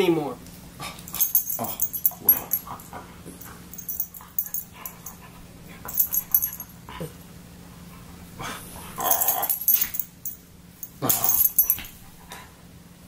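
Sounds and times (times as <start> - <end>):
light high jingling: 1.1 - 5.3, 5.9 - 6.8, 9.0 - 12.0.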